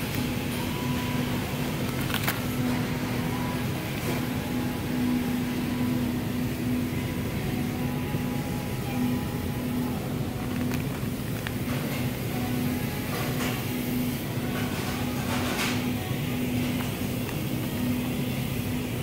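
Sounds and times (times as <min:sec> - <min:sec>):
indoor hall hum: 0:00.0 - 0:19.0
plastic wrapper crackle: 0:01.8 - 0:02.6, 0:10.4 - 0:12.0.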